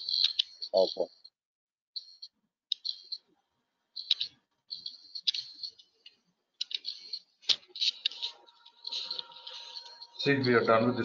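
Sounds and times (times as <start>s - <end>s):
mouse and keyboard clicks: 2.2s - 3.2s, 4.0s - 5.8s, 6.6s - 9.3s.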